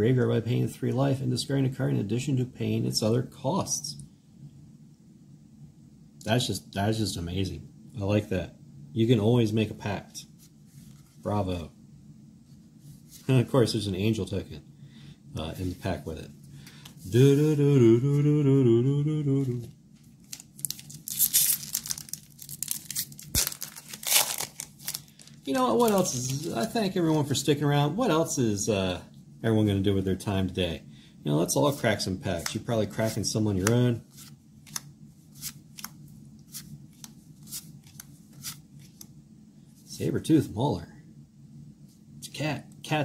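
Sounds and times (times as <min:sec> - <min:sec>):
low steady hum: 0:00.0 - 0:43.0
man humming: 0:17.0 - 0:19.8
foil wrapper crinkling and tearing: 0:20.2 - 0:26.8.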